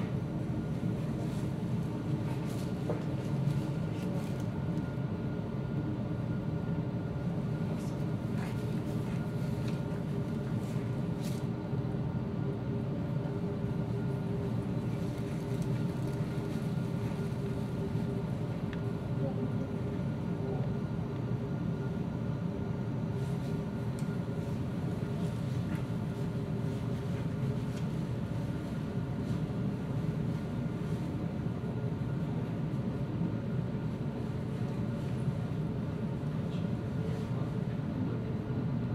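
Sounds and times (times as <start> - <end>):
steady hum with constant tones: 0.0 - 38.9.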